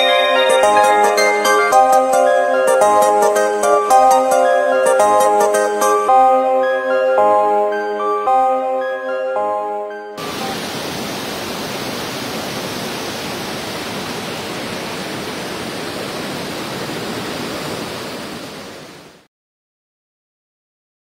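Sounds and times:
waterfall rushing: 0.0s - 4.0s, 10.2s - 19.3s.

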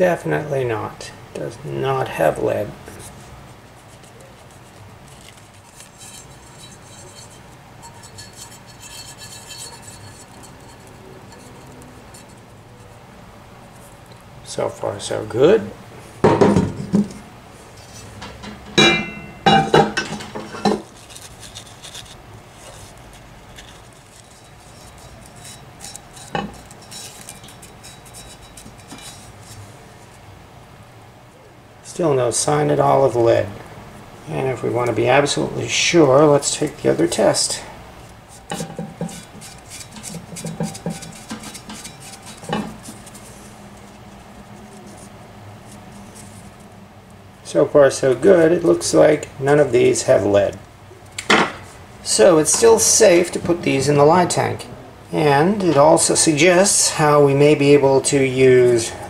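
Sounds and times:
pans rubbing: 2.8s - 13.0s, 17.8s - 30.2s, 38.1s - 46.6s
cast iron pans clanking: 5.9s - 12.5s, 18.1s - 20.9s, 24.3s - 29.4s, 38.4s - 43.2s.

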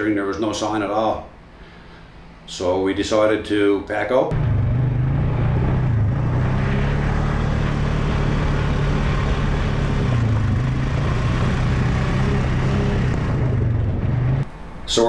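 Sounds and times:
atv engines at low throttle: 4.3s - 14.5s.

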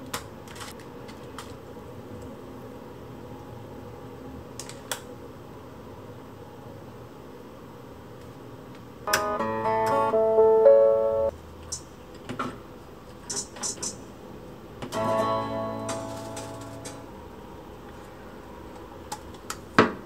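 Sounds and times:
strummed guitar chord: 9.1s - 11.3s, 15.0s - 17.0s.

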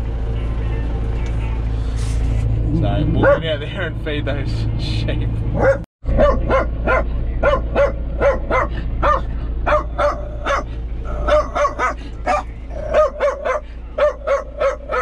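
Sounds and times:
tractor engine humming: 0.0s - 15.0s
dog barking and yipping: 3.2s - 3.4s, 5.6s - 15.0s.

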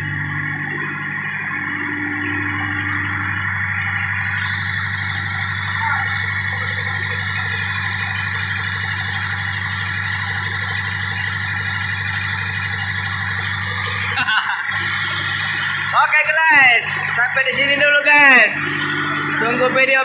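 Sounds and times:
diesel engine drone: 0.0s - 20.0s.

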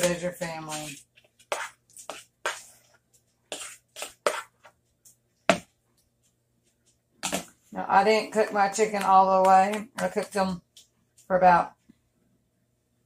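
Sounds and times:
utensil scraping in a bowl: 0.0s - 4.8s.

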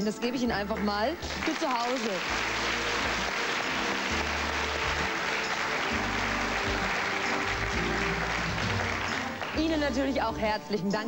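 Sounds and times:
audience applauding: 0.7s - 10.1s
closing music with bass line: 2.3s - 10.6s.

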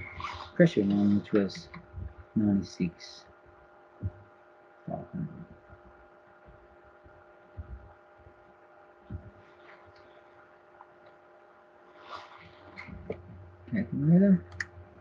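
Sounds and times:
faint electrical hum: 0.0s - 15.0s
soft low thumps: 1.1s - 2.4s, 3.9s - 4.3s, 4.9s - 8.4s, 9.0s - 9.5s.

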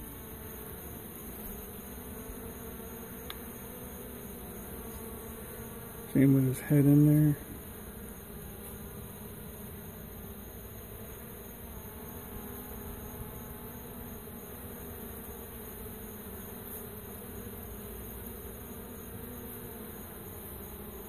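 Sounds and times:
bees buzzing: 0.0s - 21.0s.

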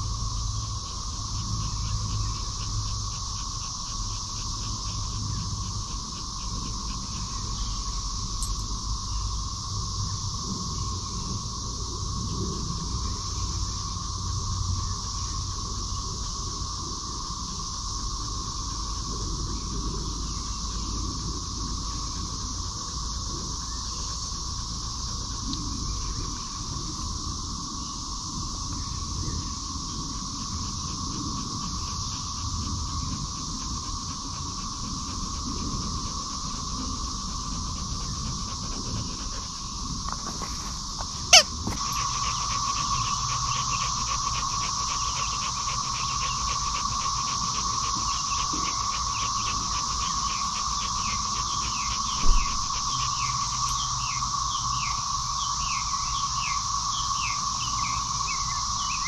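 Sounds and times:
insect chorus buzzing: 0.0s - 59.0s
squeaky dog toy squeak: 41.3s - 41.5s.

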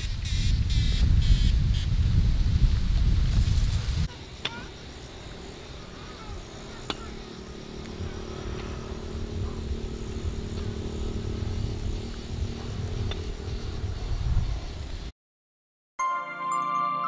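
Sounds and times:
small motorbike engine running: 4.2s - 15.0s.

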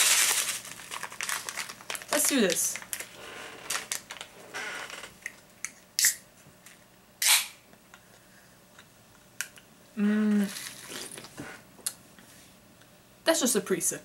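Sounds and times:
can opening with fizzing hiss: 7.2s - 7.6s
person humming while drinking: 10.0s - 10.6s.

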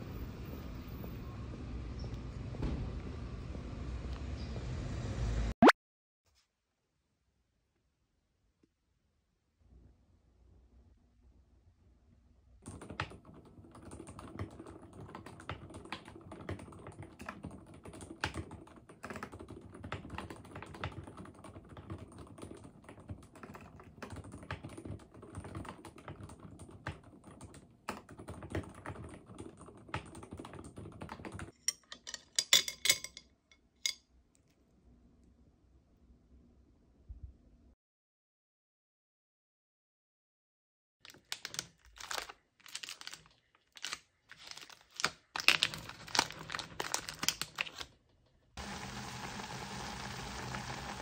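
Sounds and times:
typing on mechanical keyboard: 12.6s - 31.6s.

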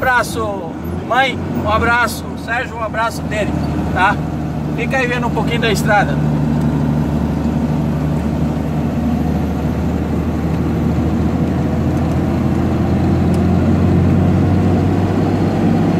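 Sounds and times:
road noise: 0.0s - 15.9s
truck engine drone: 0.0s - 15.9s.

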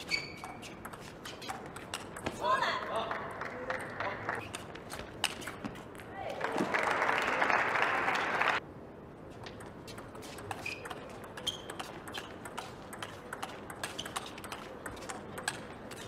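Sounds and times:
shoe squeaks: 0.0s - 2.4s, 9.9s - 16.0s
applause: 3.0s - 4.4s, 6.4s - 8.6s.

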